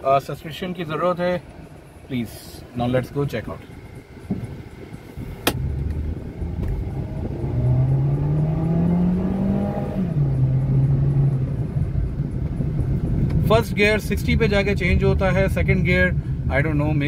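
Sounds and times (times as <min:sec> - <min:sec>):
car engine accelerating: 0:03.4 - 0:15.9
sharp click: 0:05.4 - 0:06.0.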